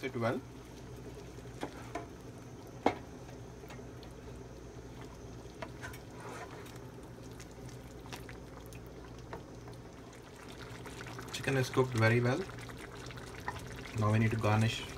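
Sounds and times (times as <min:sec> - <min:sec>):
spatula scraping pan: 0:05.8 - 0:06.6.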